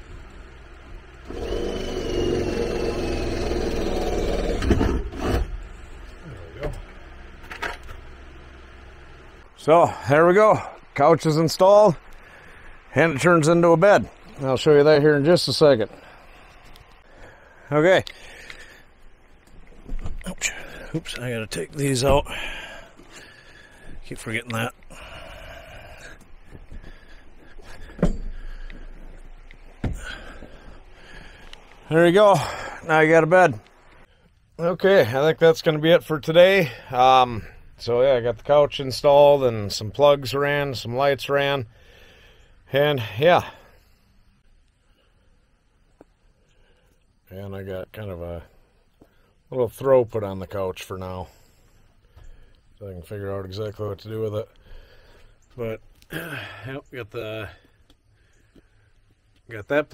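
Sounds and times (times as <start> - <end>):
power drill whine: 0.0 - 8.0.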